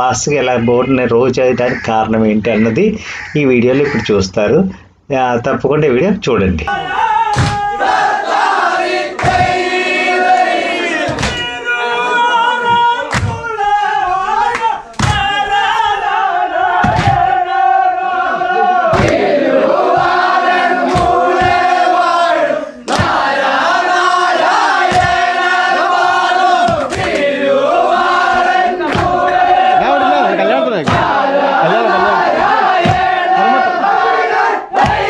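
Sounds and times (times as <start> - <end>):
loud rhythmic thump: 6.6 - 11.7, 12.6 - 17.8, 18.8 - 30.1, 30.7 - 33.6, 34.3 - 35.0
men chanting in unison: 6.7 - 35.0.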